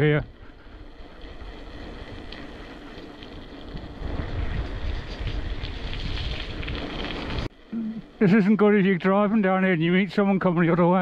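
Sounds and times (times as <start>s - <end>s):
wind buffeting microphone: 0.2s - 7.5s.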